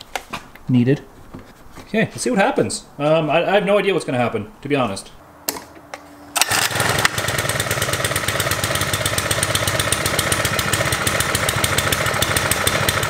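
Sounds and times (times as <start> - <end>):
small engine running: 6.4 - 13.0.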